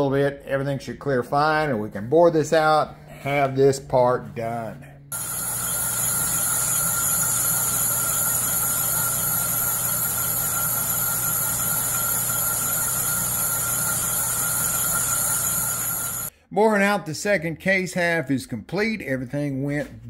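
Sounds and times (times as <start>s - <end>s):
metal lathe running: 5.1s - 16.3s.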